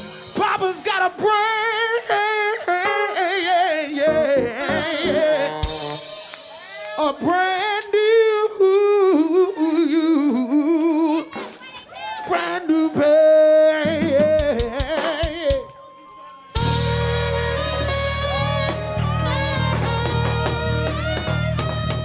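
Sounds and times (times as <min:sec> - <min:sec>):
man singing soul vocal runs: 0:00.2 - 0:11.4, 0:12.2 - 0:16.0.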